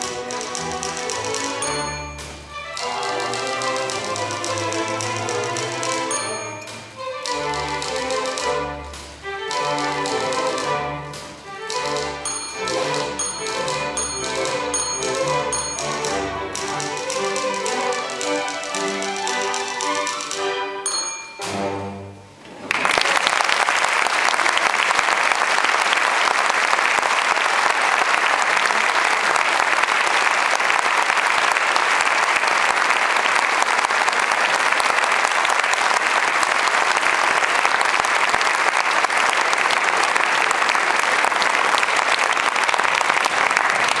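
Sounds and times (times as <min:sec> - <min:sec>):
audience applauding: 0:22.5 - 0:44.0.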